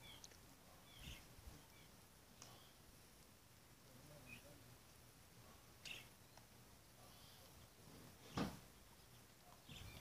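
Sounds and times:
faint background hiss: 0.0 - 10.0.

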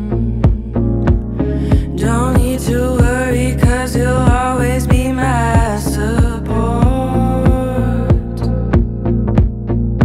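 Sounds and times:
person singing: 0.0 - 9.5
pop song with steady beat: 0.0 - 10.0.

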